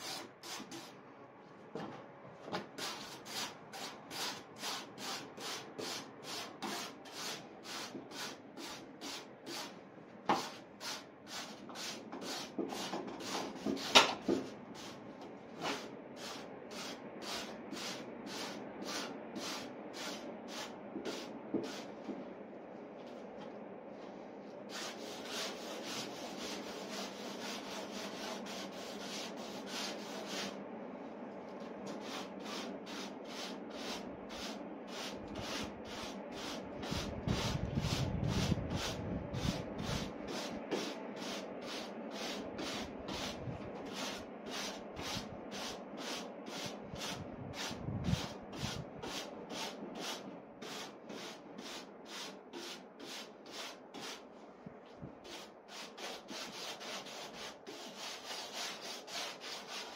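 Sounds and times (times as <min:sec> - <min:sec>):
rubbing strokes on wooden board: 0:02.8 - 0:09.7, 0:24.7 - 0:30.6, 0:31.9 - 0:54.2, 0:55.2 - 0:59.9.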